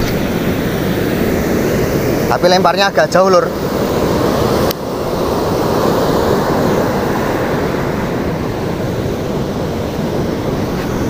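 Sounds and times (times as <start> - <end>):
small waves breaking on beach: 0.0 - 11.0.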